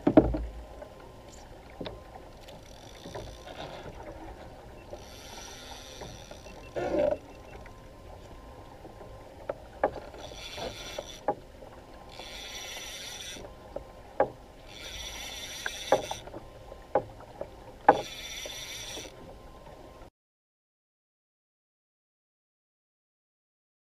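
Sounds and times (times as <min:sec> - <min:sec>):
fishing reel cranking: 0:02.5 - 0:04.0, 0:04.9 - 0:07.0, 0:10.0 - 0:11.3, 0:12.1 - 0:13.5, 0:14.6 - 0:16.3, 0:17.9 - 0:19.1.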